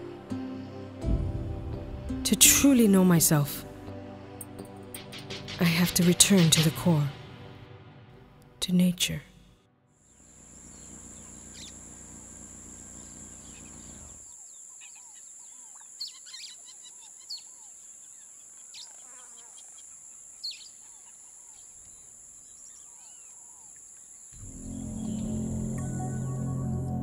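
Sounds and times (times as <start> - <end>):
birds calling: 10.1 - 26.4
high-pitched insect drone: 10.1 - 27.0.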